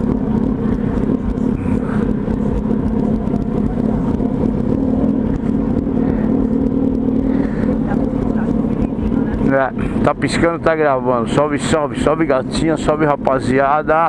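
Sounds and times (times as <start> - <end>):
motorcycle engine at low revs: 0.0 - 14.0.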